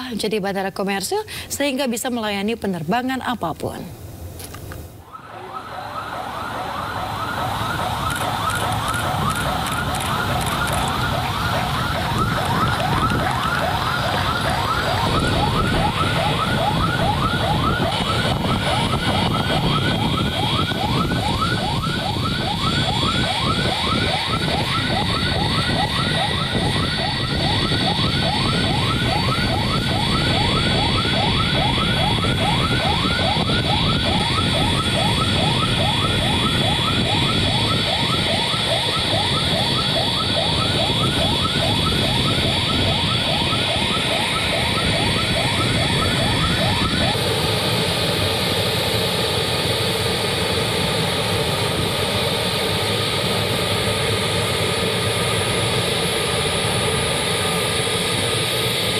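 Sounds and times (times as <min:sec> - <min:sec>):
jet engines whining: 0:00.0 - 0:58.9.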